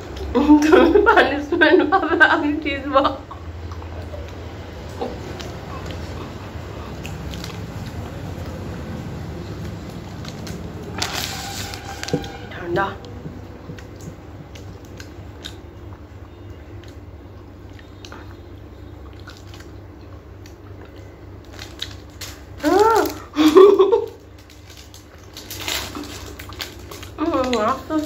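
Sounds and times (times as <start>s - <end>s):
low hum: 0.0s - 28.0s
biting and sucking ice cream: 3.4s - 22.6s.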